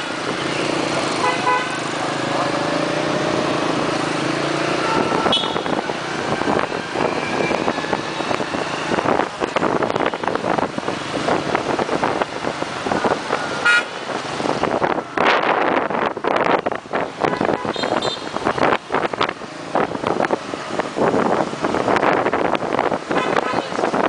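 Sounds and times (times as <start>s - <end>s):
traffic engines running: 0.0s - 24.0s
wind buffeting microphone: 2.9s - 24.0s
short horn beeps: 4.8s - 5.7s.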